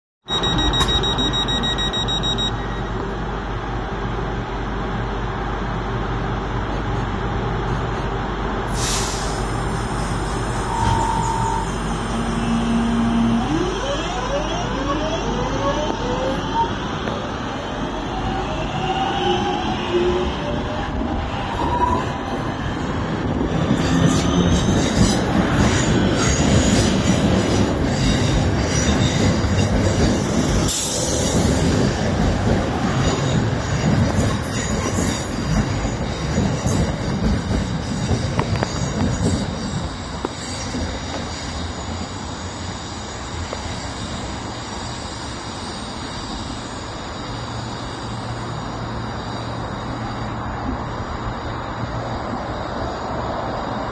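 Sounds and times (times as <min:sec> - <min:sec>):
train wheel and rail noise: 0:00.3 - 0:53.9
high wheel squeals: 0:08.9 - 0:16.7.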